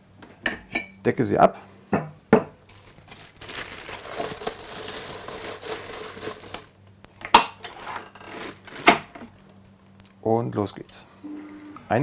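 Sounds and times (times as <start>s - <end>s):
plastic cover crinkling: 2.7s - 6.8s, 7.5s - 9.5s.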